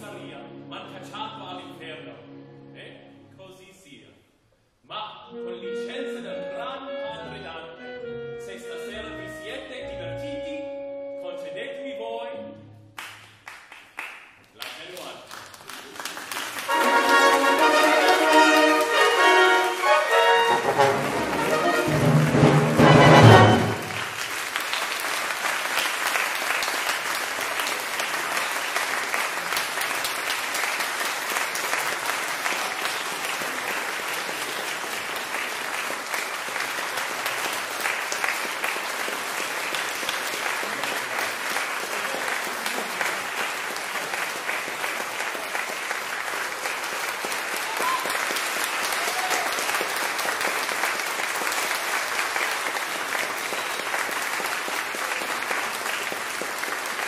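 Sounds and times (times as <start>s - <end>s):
audience applauding: 13.0s - 57.0s
orchestra closing chords: 16.7s - 24.3s.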